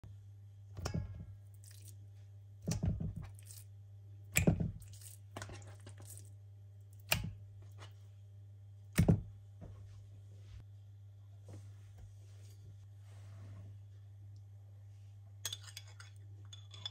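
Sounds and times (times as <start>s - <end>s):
meat slapping into metal bowl: 7.0s - 7.9s.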